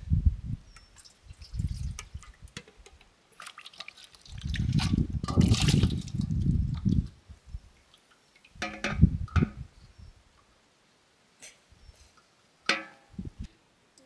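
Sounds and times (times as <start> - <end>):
light splashes: 1.0 - 6.3
water pouring into a basin: 3.4 - 7.1.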